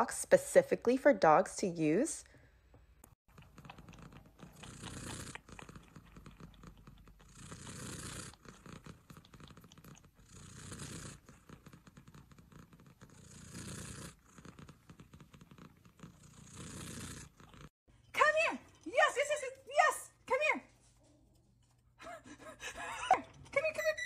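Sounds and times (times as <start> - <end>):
cat purring: 3.3 - 17.7.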